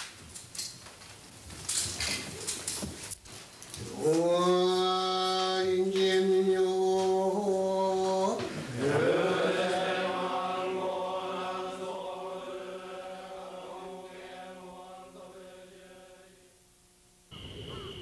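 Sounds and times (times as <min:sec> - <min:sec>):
man chanting: 0:03.8 - 0:09.3.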